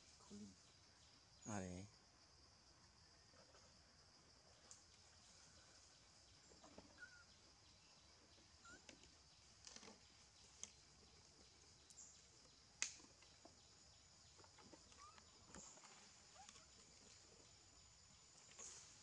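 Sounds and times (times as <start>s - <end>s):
faint chirps: 0.0s - 2.0s, 2.8s - 19.0s
rustles: 8.4s - 19.0s.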